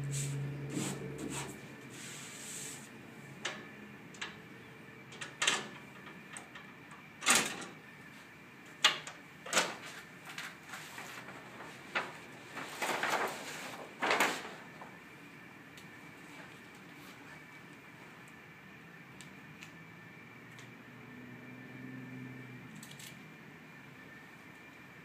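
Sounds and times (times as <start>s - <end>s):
rustling scrapes of panels: 0.0s - 2.9s, 9.7s - 14.8s.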